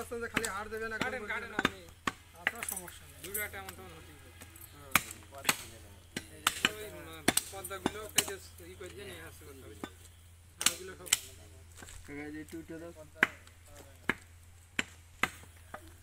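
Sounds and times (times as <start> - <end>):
cleaver chopping meat on wood: 0.2 - 2.6, 4.9 - 8.4, 13.2 - 15.9.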